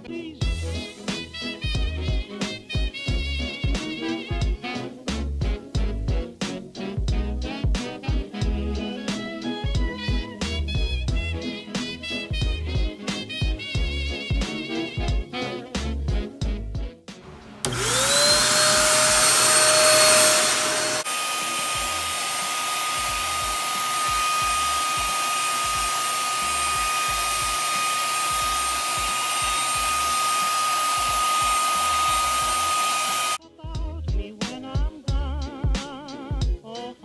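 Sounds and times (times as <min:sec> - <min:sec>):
vacuum cleaner whine: 0:17.2 - 0:33.4
floor nozzle sweeping carpet: 0:17.3 - 0:33.4.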